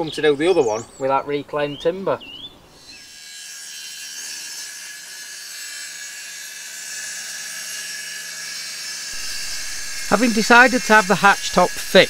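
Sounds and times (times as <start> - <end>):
circular saw cutting wood: 3.0 - 12.0.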